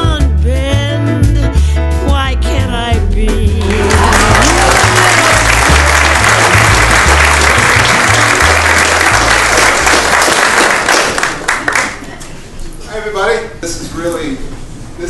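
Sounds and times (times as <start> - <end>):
background music with bass line: 0.0 - 9.8
audience applauding: 3.6 - 12.2.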